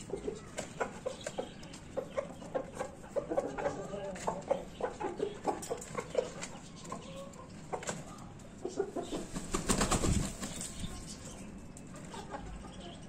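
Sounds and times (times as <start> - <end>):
chickens clucking: 0.0 - 13.0
rooster wings flapping: 9.2 - 10.8.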